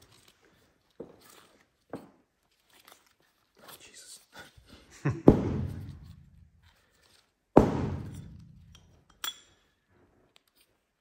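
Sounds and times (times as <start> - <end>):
loud thunk on workbench: 5.3 - 5.9, 7.6 - 8.3
ringing metallic clink: 8.7 - 9.8.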